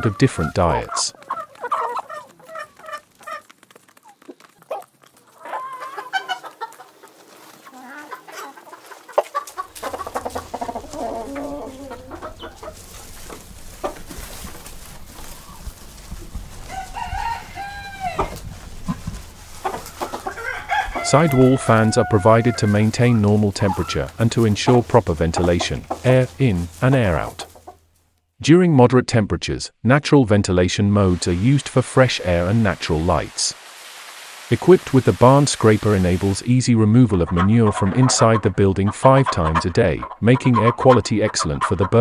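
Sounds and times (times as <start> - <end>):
chickens clucking: 0.0 - 27.9, 34.6 - 42.0
rooster crowing: 16.7 - 18.4, 20.0 - 22.6.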